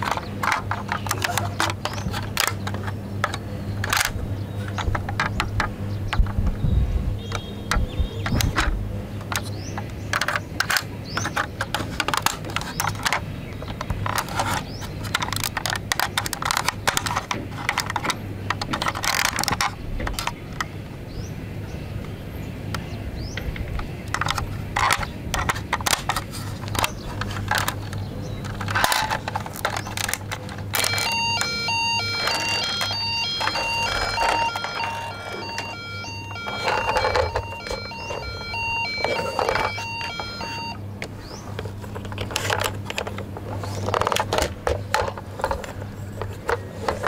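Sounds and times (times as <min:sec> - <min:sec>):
toy doors snapping: 0:00.0 - 0:06.4, 0:07.3 - 0:20.7, 0:23.4 - 0:47.0
plastic toy clicks and knocks: 0:00.0 - 0:06.6, 0:07.3 - 0:20.7, 0:23.3 - 0:47.0
electronic beeping tune: 0:30.8 - 0:40.8.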